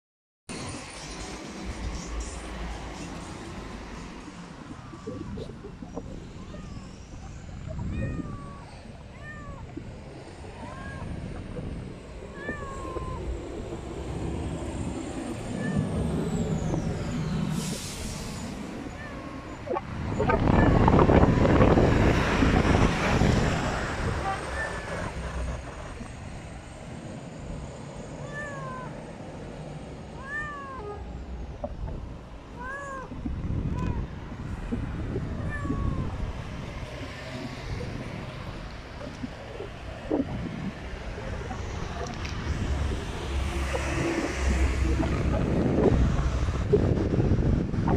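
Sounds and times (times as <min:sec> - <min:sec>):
cat meowing: 0:06.1 - 0:11.6, 0:12.3 - 0:13.7, 0:15.4 - 0:16.1, 0:18.8 - 0:21.6, 0:24.0 - 0:25.2, 0:28.2 - 0:29.1, 0:30.1 - 0:31.0, 0:32.5 - 0:34.1, 0:34.7 - 0:36.3
low rumble: 0:31.0 - 0:47.9.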